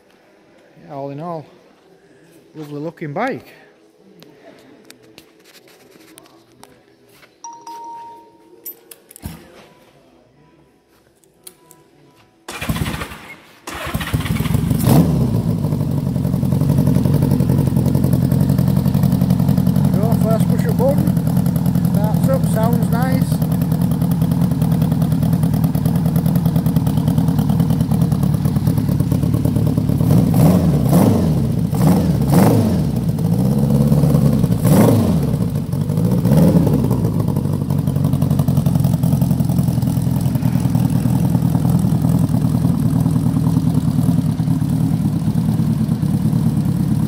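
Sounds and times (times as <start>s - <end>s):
motorcycle engine idling and revving: 13.7s - 47.0s.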